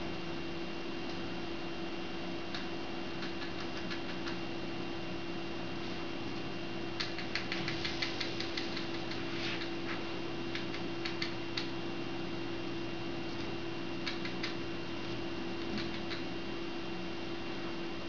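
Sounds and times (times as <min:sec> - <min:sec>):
electrical hum: 0:00.0 - 0:18.0
chinchillas clicking in wire cage: 0:02.5 - 0:04.4, 0:07.0 - 0:09.8, 0:10.5 - 0:11.7, 0:14.0 - 0:14.6, 0:15.6 - 0:16.3.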